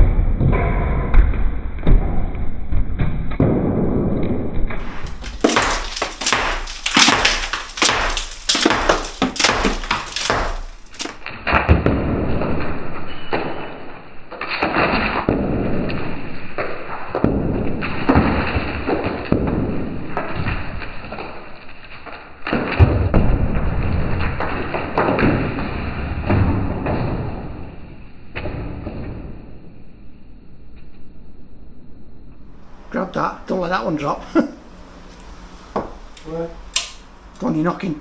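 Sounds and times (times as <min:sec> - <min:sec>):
bricks and rubble clattering: 0:04.8 - 0:11.8
hammer knocking bricks: 0:04.8 - 0:12.0.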